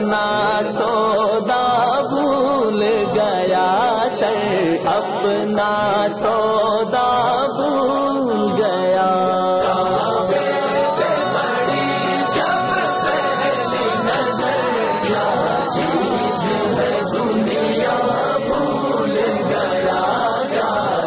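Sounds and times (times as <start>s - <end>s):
men singing chanted melody: 0.0s - 21.0s
held low vocal drone: 9.6s - 21.0s.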